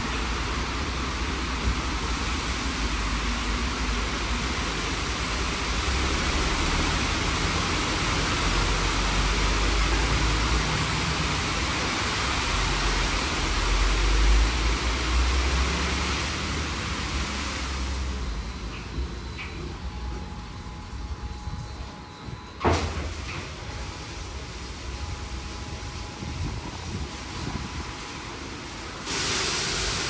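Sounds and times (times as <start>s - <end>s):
high-pressure water jets spraying: 23.9s - 30.0s.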